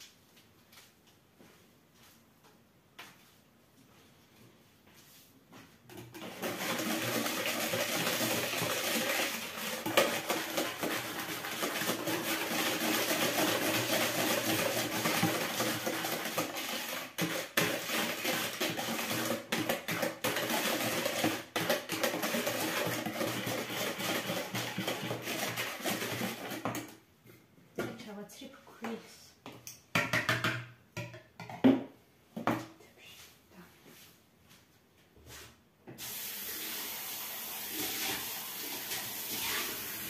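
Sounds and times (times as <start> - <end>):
wire whisk beating in plastic bowl: 6.1 - 26.9.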